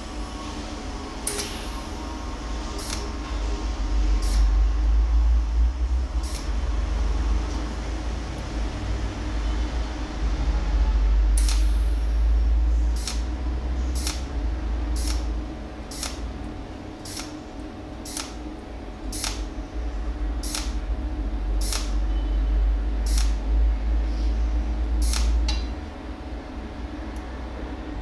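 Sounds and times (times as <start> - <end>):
low welder hum: 0.0 - 28.0
welding pulse snaps: 1.2 - 1.8, 2.8 - 3.1, 6.2 - 6.5, 11.4 - 11.8, 13.0 - 13.3, 14.0 - 14.2, 15.0 - 15.3, 15.9 - 16.2, 17.0 - 17.4, 18.1 - 18.4, 19.2 - 19.5, 20.4 - 20.8, 21.6 - 22.0, 23.1 - 23.4, 25.0 - 25.7.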